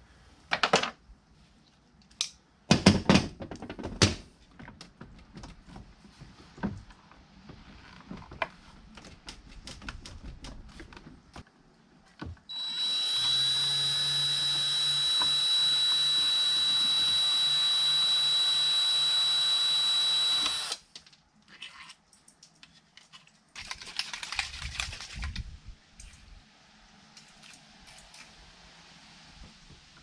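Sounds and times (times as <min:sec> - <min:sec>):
cordless drill motor whine: 0:12.5 - 0:20.8.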